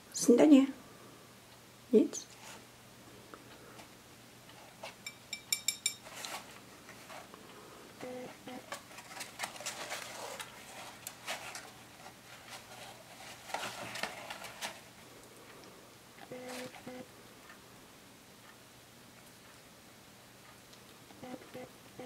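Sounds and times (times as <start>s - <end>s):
light clinks: 5.0s - 6.1s
rats rustling and scratching: 6.0s - 7.4s, 8.2s - 15.0s.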